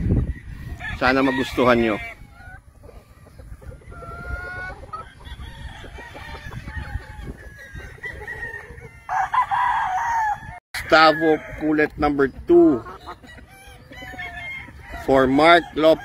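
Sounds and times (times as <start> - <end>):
chickens clucking: 0.0 - 9.7, 10.8 - 16.0
rooster crowing: 5.2 - 11.6.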